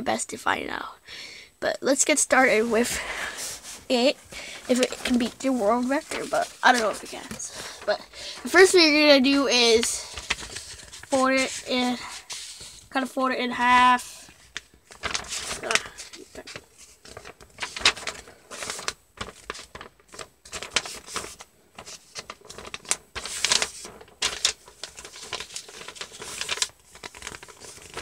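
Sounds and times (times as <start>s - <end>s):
paper rustling and crinkling: 2.3s - 28.0s.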